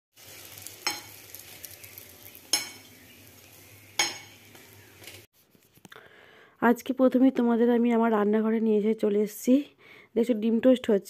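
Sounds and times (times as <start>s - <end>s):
bread sizzling in oil: 0.1s - 5.3s.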